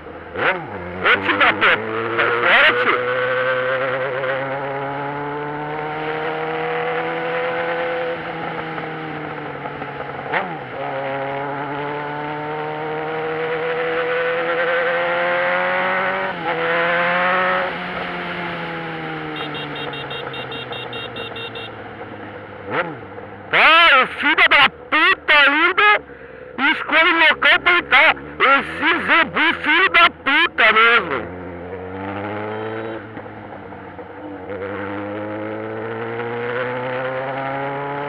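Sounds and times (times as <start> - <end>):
motorcycle engine revving through gears: 0.0 - 23.5, 27.6 - 38.0
quick high beeps: 19.4 - 21.7.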